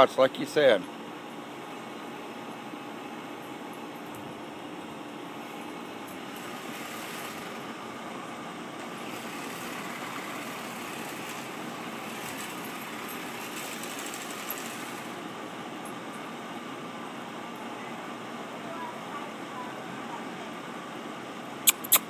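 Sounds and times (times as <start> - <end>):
lawn mower engine running: 5.1 - 16.4.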